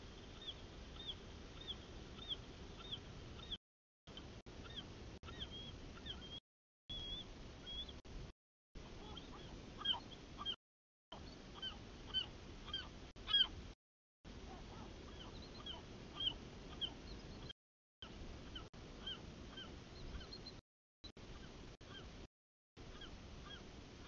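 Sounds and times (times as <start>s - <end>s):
eagles chirping: 0.2s - 3.6s, 4.2s - 8.0s, 9.0s - 10.6s, 11.2s - 13.6s, 14.5s - 17.5s, 18.4s - 20.6s.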